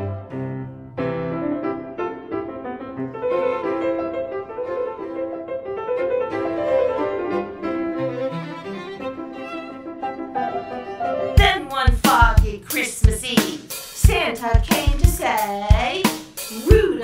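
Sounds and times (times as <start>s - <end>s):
instrumental piano music: 0.0s - 11.9s.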